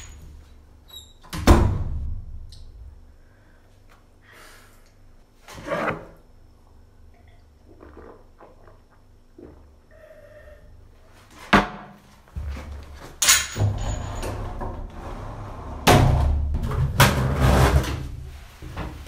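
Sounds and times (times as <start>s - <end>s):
banging and clattering: 13.1s - 14.9s.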